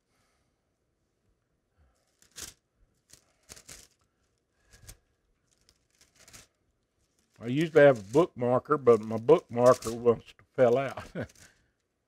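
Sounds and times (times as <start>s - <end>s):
bible pages being turned: 2.0s - 11.8s.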